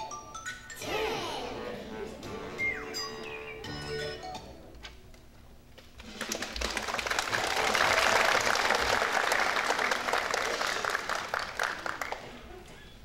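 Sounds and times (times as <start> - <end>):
audience applause: 6.0 - 12.5.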